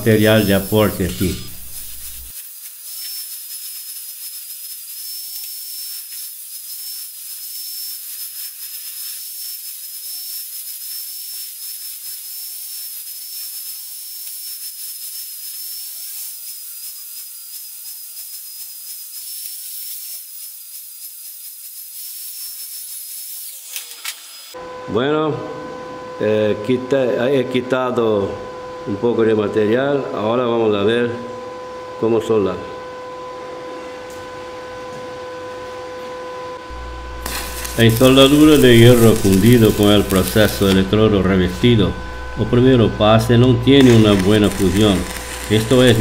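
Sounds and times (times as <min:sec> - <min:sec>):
grinder cutting metal: 0:00.0 - 0:24.6, 0:36.7 - 0:46.0.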